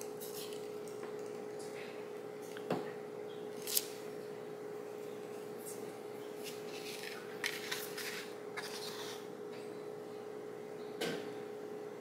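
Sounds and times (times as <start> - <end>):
faint steady hum: 0.0 - 12.0
paper rustling: 6.4 - 9.2.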